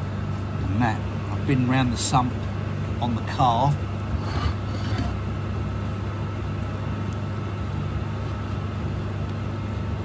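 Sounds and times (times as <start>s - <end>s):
heater humming: 0.0s - 10.0s
blade scraping metal plate: 4.1s - 5.2s.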